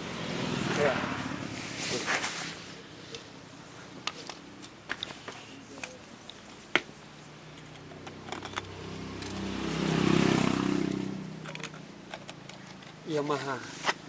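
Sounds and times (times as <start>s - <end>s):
vehicle engine passing: 7.8s - 13.2s.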